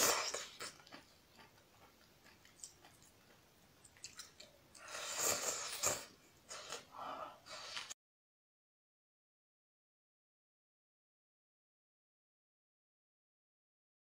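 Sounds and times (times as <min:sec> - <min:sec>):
slurping and chewing noodles: 0:00.0 - 0:08.0.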